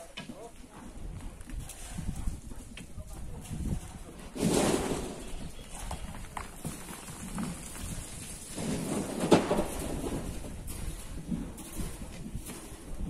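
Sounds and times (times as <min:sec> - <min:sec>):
earth and gravel pouring down: 0:04.3 - 0:13.0.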